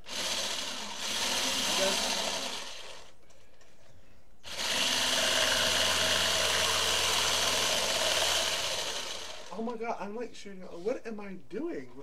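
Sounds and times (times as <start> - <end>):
immersion blender whisking batter: 0.0 - 3.0.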